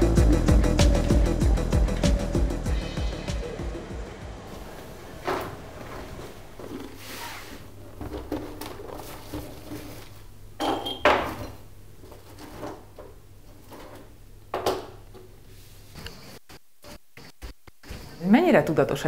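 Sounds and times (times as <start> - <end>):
objects knocking and clattering: 5.2 - 15.3.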